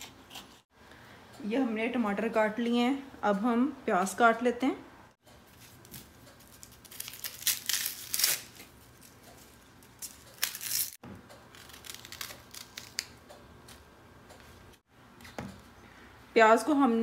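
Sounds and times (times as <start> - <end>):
onion skin crinkling and tearing: 5.5 - 13.2.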